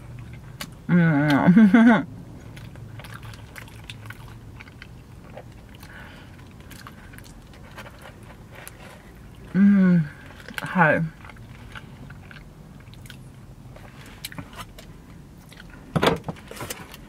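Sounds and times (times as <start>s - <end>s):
chewing with wet clicks: 0.1s - 0.8s, 2.3s - 9.5s, 10.2s - 15.9s
person humming: 0.9s - 1.6s, 9.5s - 10.2s.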